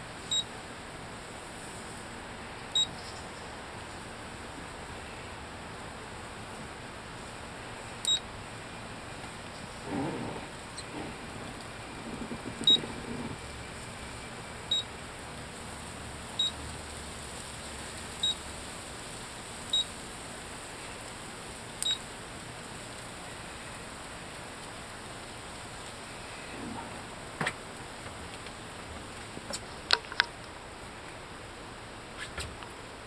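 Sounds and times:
steady low hiss: 0:00.0 - 0:33.0
keypad beeping: 0:02.7 - 0:02.9, 0:08.0 - 0:08.2, 0:12.6 - 0:12.9, 0:21.8 - 0:22.0.

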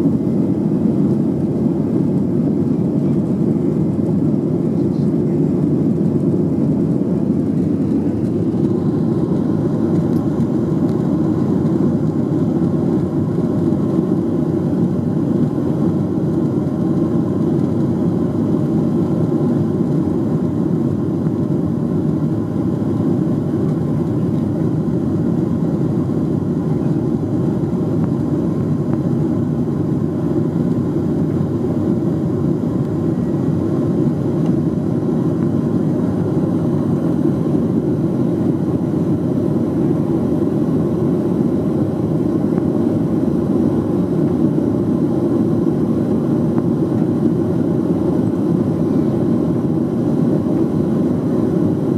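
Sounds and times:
jet engines at climb power: 0:00.0 - 0:51.9.

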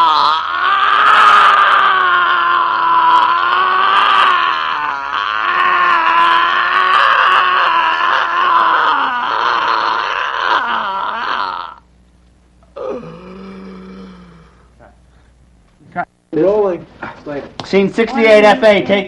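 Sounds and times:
person screaming: 0:00.0 - 0:11.8.

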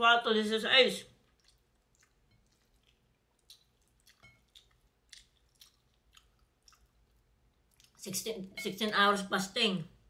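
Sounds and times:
chewing crispy chicken: 0:01.1 - 0:08.1.

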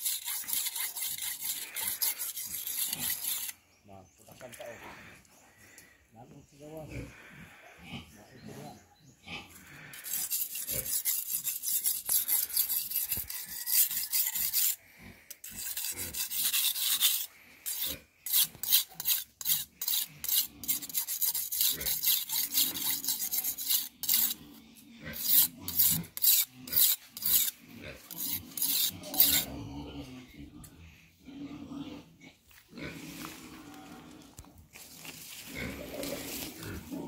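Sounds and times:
knife sharpened on whetstone: 0:00.0 - 0:03.6, 0:10.0 - 0:24.4, 0:25.0 - 0:29.5.

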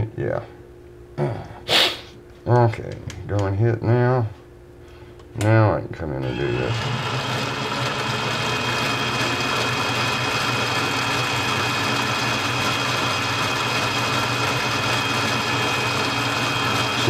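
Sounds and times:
mini lathe whining: 0:06.2 - 0:17.0.

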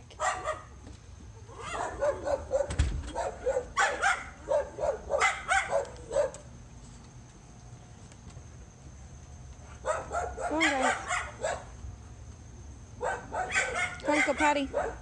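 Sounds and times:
dogs barking: 0:00.2 - 0:00.7, 0:01.5 - 0:06.5, 0:09.8 - 0:11.8, 0:13.0 - 0:15.0.

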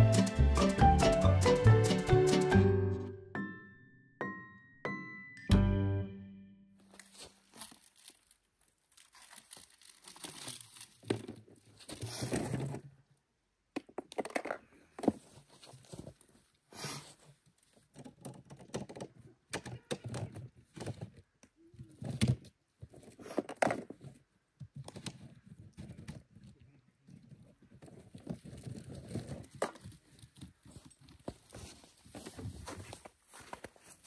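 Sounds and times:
rustling and crinkling: 0:06.8 - 0:13.1, 0:14.1 - 0:34.0.

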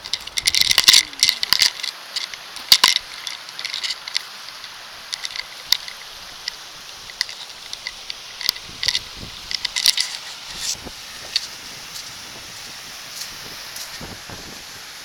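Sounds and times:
stream rushing: 0:00.0 - 0:15.0
footsteps on rough grass: 0:08.6 - 0:14.6.

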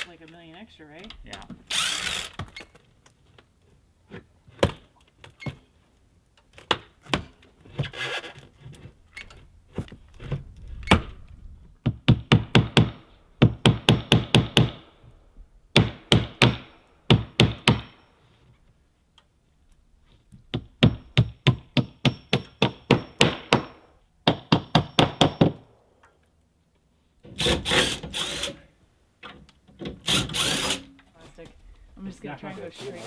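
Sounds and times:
hammer knocking on wooden wall: 0:11.8 - 0:14.8.

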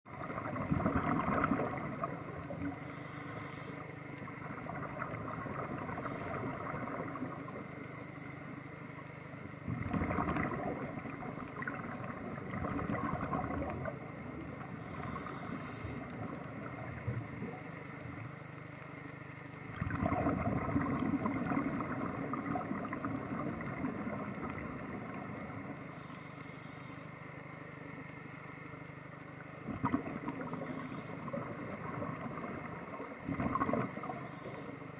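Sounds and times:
low underwater hum: 0:00.0 - 0:34.9
exhaled bubbles rushing: 0:00.1 - 0:02.4, 0:04.5 - 0:07.4, 0:09.7 - 0:14.5, 0:19.7 - 0:25.6, 0:29.6 - 0:30.5, 0:31.2 - 0:34.1
regulator hissing inhalations: 0:02.6 - 0:03.8, 0:14.8 - 0:16.1, 0:25.9 - 0:27.2, 0:30.5 - 0:31.3, 0:34.0 - 0:34.8.

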